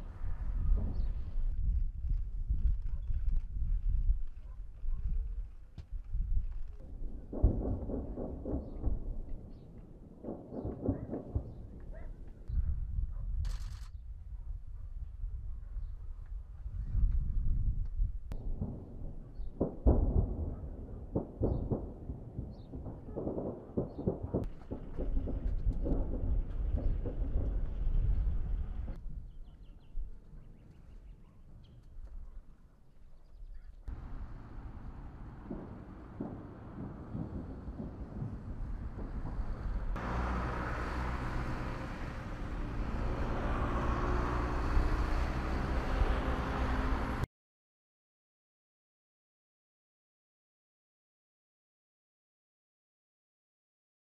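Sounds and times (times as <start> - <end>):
distant explosions booming: 6.8 - 12.0, 18.3 - 29.0, 33.9 - 42.2
buses and trucks driving past: 26.7 - 29.0, 33.9 - 47.3.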